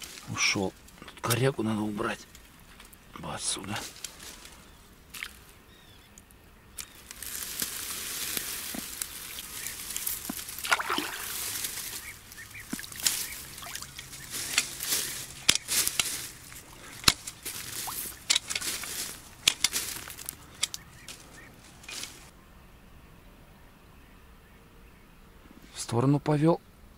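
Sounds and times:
water sloshing and trickling: 7.7 - 19.4.

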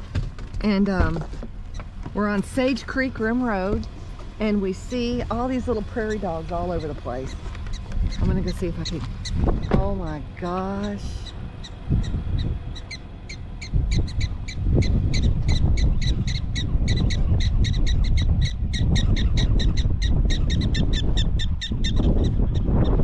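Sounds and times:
wind rumble on microphone: 0.0 - 23.0
prairie dog alarm chirps: 10.6 - 23.0.

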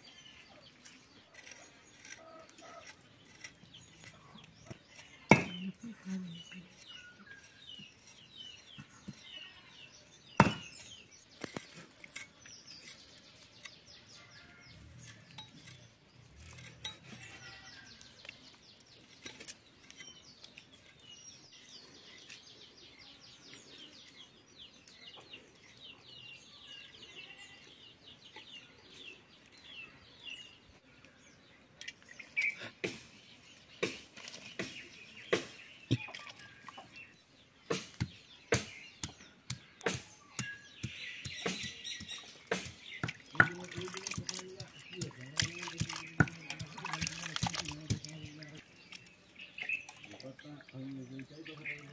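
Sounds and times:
birds chirping: 0.0 - 51.9
blades chopping on wood: 5.3 - 5.6, 10.4 - 10.9, 32.8 - 33.1, 33.8 - 36.1, 37.7 - 48.4.

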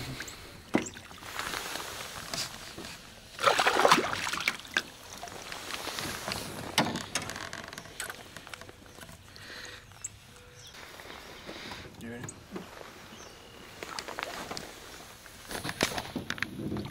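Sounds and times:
water sloshing: 0.0 - 9.5
fish thrashing and splashing: 3.3 - 6.7.

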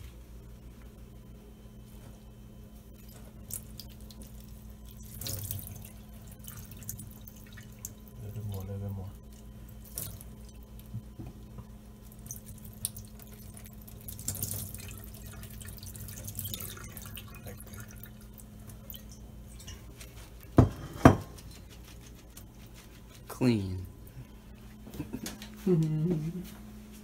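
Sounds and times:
water trickling and dripping: 2.9 - 11.2, 11.9 - 20.1.

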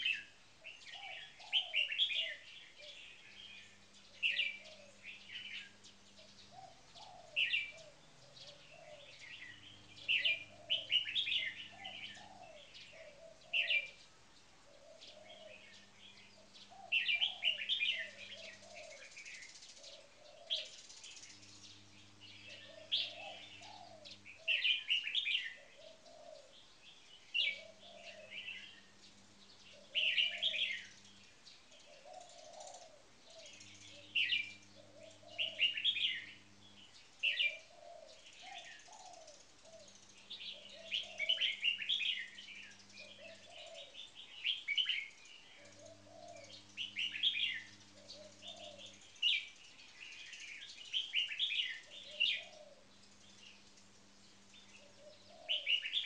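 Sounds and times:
birds singing bright phrases: 0.0 - 56.0.

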